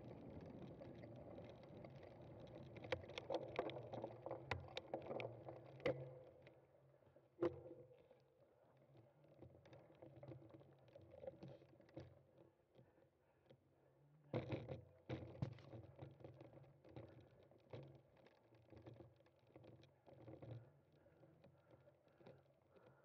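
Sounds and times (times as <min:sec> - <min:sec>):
bicycle rattling over rough ground: 0:00.0 - 0:06.3.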